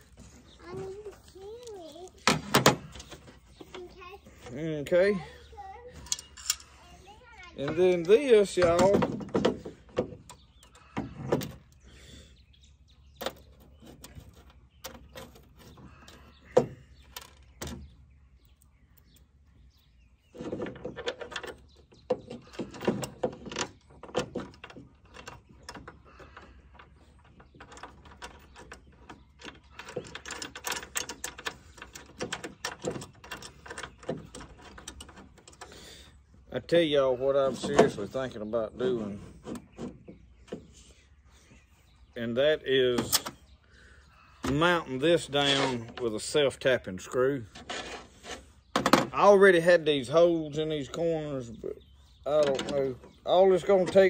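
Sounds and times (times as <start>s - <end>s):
hardware clicking and scraping on metal: 0.0s - 12.2s, 13.2s - 54.0s
rattling clicks: 20.3s - 35.8s, 52.3s - 54.0s.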